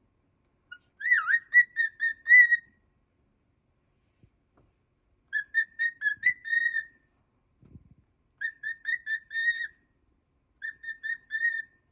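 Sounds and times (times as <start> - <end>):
cockatiel whistling: 0.7 - 2.8, 5.3 - 7.0, 8.4 - 9.8, 10.6 - 11.9.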